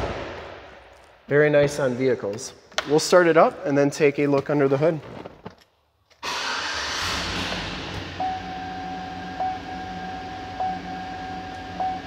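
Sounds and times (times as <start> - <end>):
car engine starting and idling: 6.2 - 12.0
dashboard warning chime: 8.2 - 12.0.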